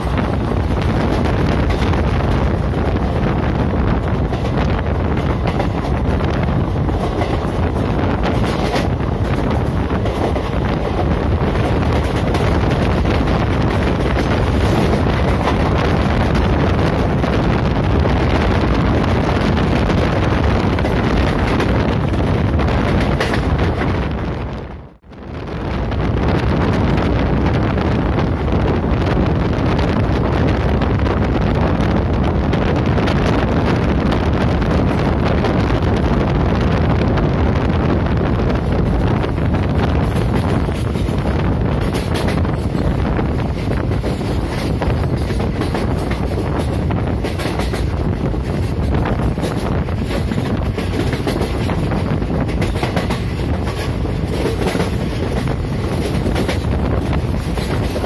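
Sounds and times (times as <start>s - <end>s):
train running noise: 0.0s - 58.0s
wind rushing over microphone: 0.0s - 58.0s.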